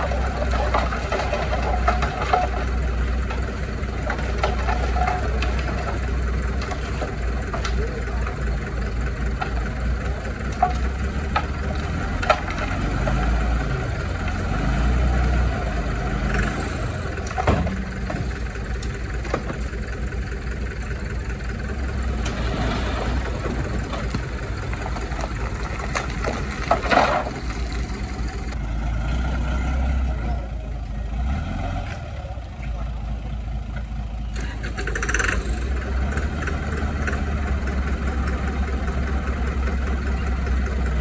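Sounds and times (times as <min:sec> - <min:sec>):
diesel construction machinery running: 0:00.0 - 0:41.0.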